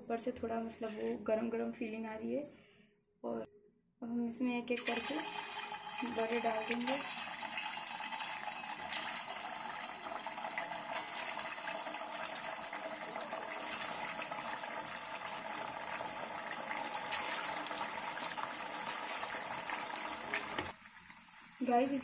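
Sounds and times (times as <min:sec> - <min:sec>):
oil sizzling and bubbling: 0:04.8 - 0:22.0.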